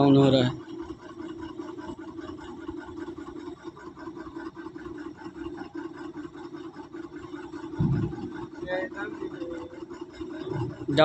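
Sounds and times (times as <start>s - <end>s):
diesel truck engine running: 0.0s - 11.0s.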